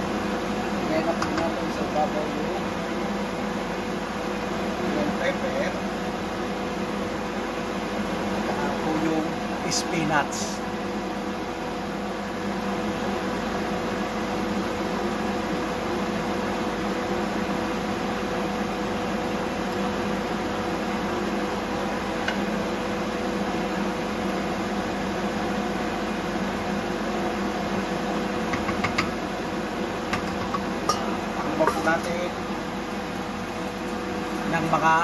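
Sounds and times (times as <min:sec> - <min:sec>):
fan-like mechanical hum: 0:00.0 - 0:35.0
wooden spoon knocking on pan: 0:28.5 - 0:29.1.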